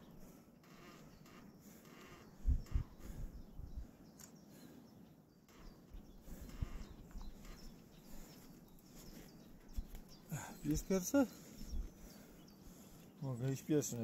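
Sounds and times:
outdoor background noise: 0.0 - 14.0
low dull thumps and knocks: 2.4 - 3.9.

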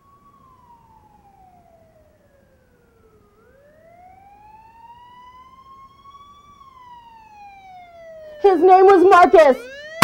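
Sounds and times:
faint wailing siren: 0.0 - 10.0.

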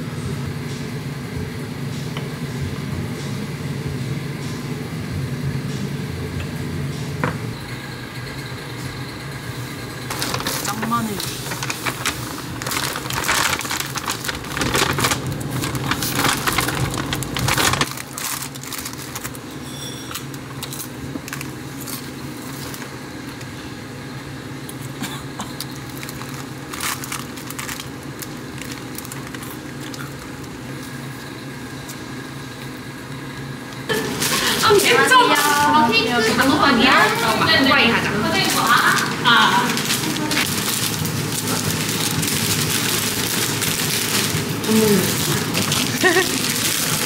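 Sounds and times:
paper bag rustling: 10.1 - 19.5, 25.8 - 30.3, 33.9 - 47.0
plastic crisp packet crinkling: 10.1 - 19.5, 25.6 - 30.9, 37.0 - 47.0.

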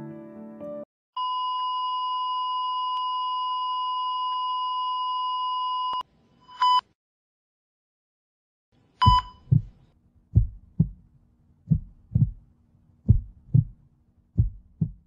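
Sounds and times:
short beep: 9.0 - 9.5.

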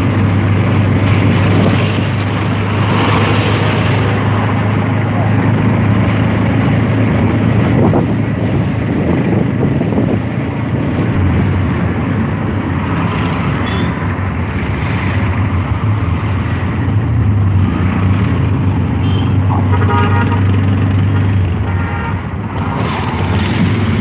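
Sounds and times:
vehicle engine hum and road noise: 0.0 - 24.0
wind on microphone: 0.2 - 13.6.

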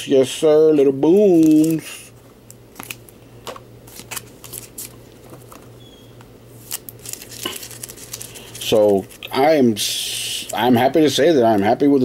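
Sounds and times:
plastic card sleeves clicking and rustling: 1.4 - 1.8, 2.8 - 3.1, 3.9 - 5.7, 6.6 - 9.2.

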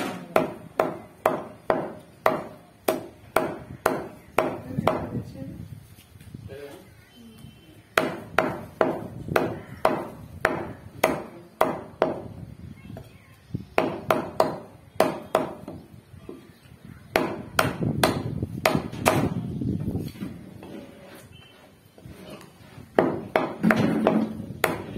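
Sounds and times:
cleaver chopping meat on wood block: 0.2 - 5.1, 8.0 - 12.3, 13.8 - 15.8, 17.1 - 19.4, 22.9 - 24.9.

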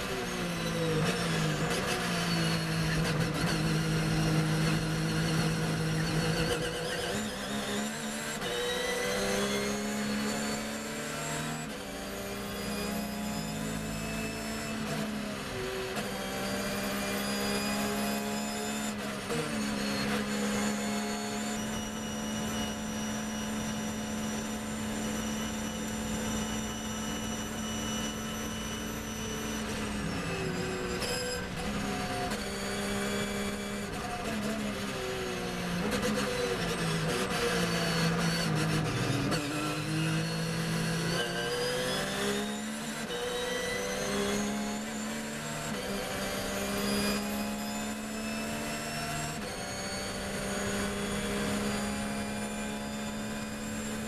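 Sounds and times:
race car engine accelerating: 0.0 - 54.0.

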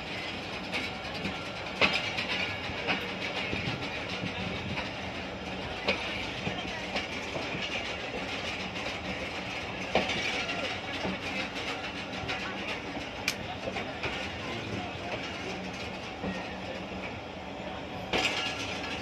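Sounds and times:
rumble of train wheels on rails: 0.0 - 19.0
wheels clacking over rail joints: 0.0 - 19.0.

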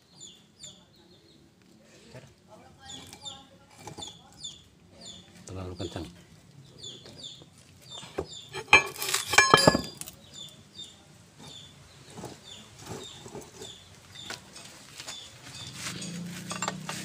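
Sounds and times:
bird chirping: 0.0 - 1.5, 2.8 - 14.4, 15.0 - 16.2
steel parts clinking: 8.5 - 10.1, 16.0 - 17.0.

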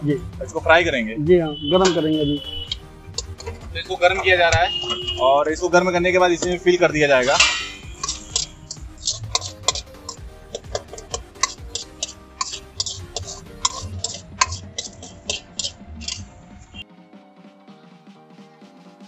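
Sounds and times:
steel ladle scraping a pan: 2.6 - 5.2, 6.3 - 16.8.

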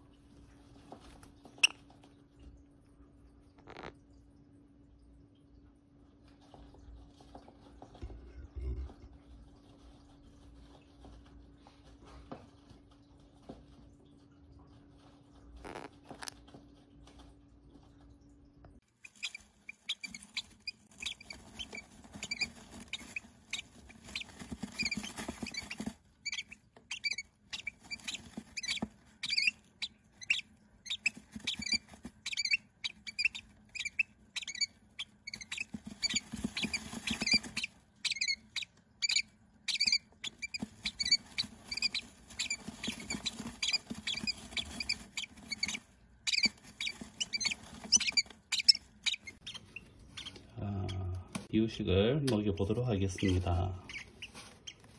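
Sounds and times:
nestlings peeping: 1.2 - 2.5, 18.8 - 51.6, 52.2 - 54.9.

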